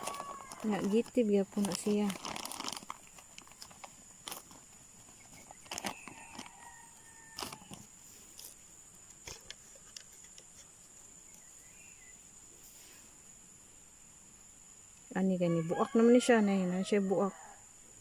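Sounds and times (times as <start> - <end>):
distant rooster crowing: 0.0 - 1.0, 5.8 - 7.9, 15.4 - 17.8
plastic bags rustling and clicking: 0.0 - 8.6.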